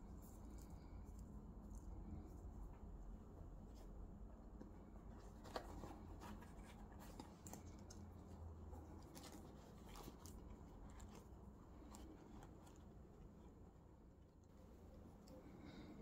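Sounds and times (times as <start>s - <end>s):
low steady hum: 0.0s - 16.0s
leather rustling: 5.0s - 13.6s.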